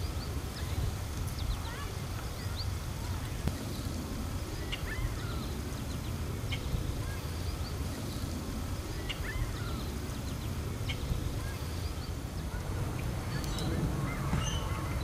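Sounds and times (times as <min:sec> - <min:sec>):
steady low rumble: 0:00.0 - 0:15.0
bird chirps: 0:04.5 - 0:15.0.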